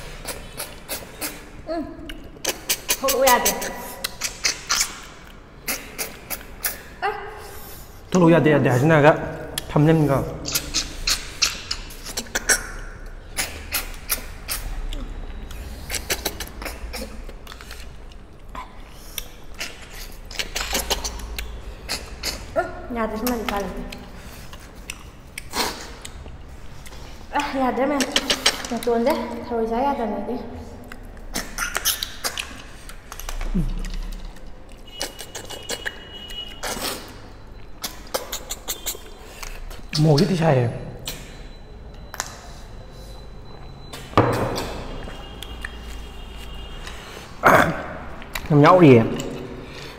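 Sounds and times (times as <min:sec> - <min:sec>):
people slurping snails: 0:00.0 - 0:08.0, 0:10.5 - 0:22.6, 0:24.2 - 0:26.4, 0:31.2 - 0:40.4
slurping snails from shells: 0:02.3 - 0:06.9
sharp clicks and smacks: 0:10.5 - 0:14.6, 0:41.0 - 0:42.4.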